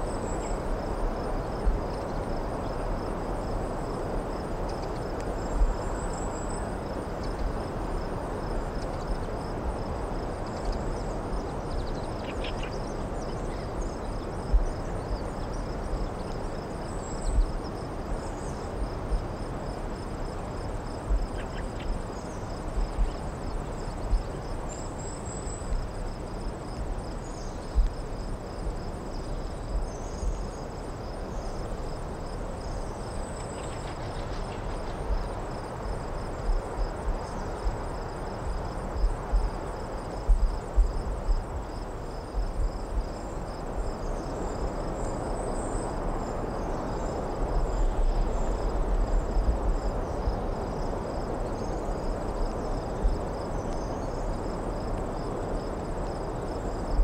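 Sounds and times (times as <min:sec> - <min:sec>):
crickets chirping: 0:00.0 - 0:57.0
wind thumps on microphone: 0:36.2 - 0:43.2.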